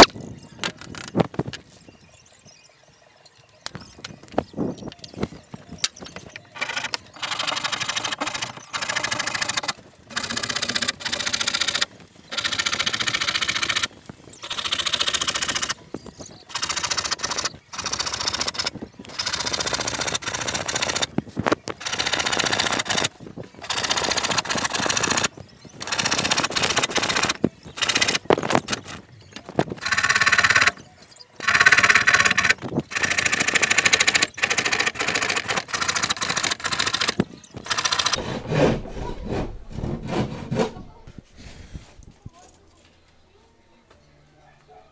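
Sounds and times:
hand saw cutting plywood: 0:31.4 - 0:41.7.

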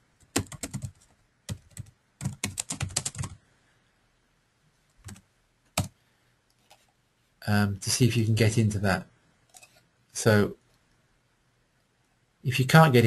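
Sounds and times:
keyboard keys clicking: 0:00.2 - 0:03.4.

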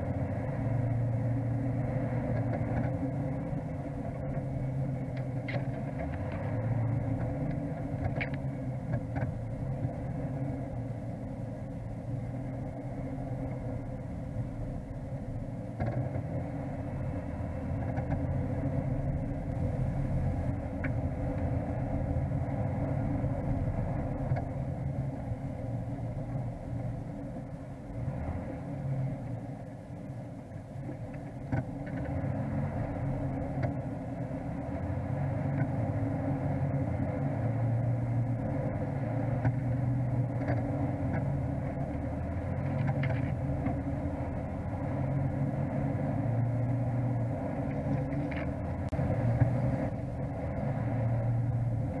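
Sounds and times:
vehicle engine running: 0:00.0 - 0:52.0.

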